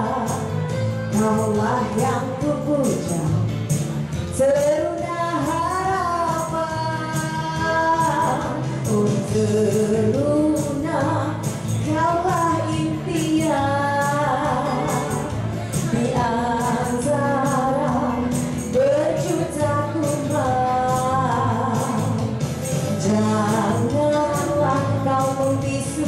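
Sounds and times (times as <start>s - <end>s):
backing music track: 0.0s - 26.0s
woman singing into microphone: 0.0s - 26.0s
high percussion beat: 5.5s - 25.9s.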